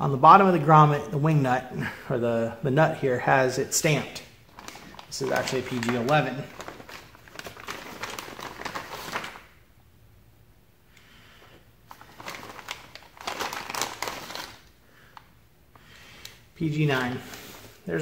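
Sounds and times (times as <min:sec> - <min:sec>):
plastic bag crinkling: 0:03.7 - 0:09.6, 0:11.9 - 0:15.3.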